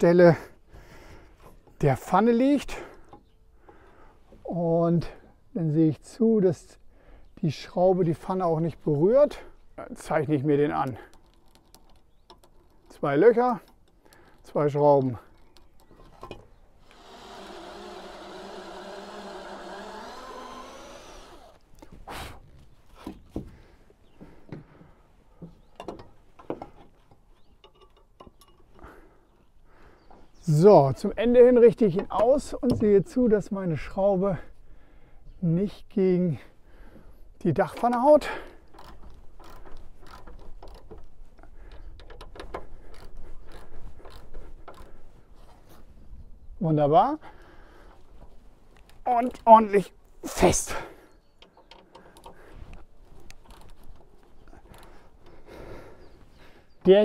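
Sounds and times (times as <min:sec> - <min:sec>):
metallic clicks and rattles: 0:10.8 - 0:16.5, 0:37.7 - 0:45.0
cordless drill running: 0:16.8 - 0:21.6
metal hook and tools knocking: 0:27.6 - 0:28.8.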